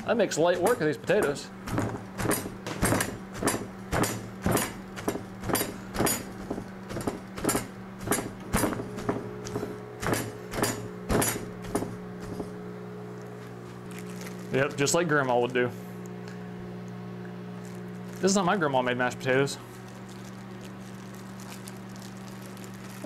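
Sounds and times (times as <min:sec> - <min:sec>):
steady hum: 0:00.0 - 0:23.0
hammer pounding potatoes on table: 0:00.5 - 0:12.5.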